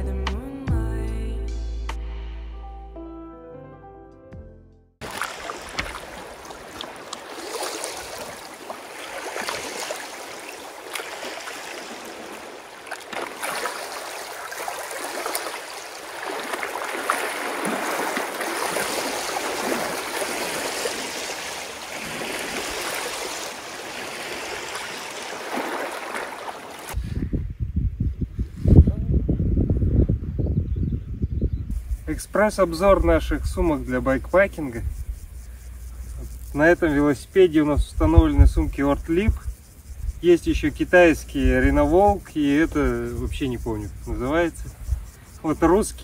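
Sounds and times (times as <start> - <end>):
water rushing: 5.0 - 27.0.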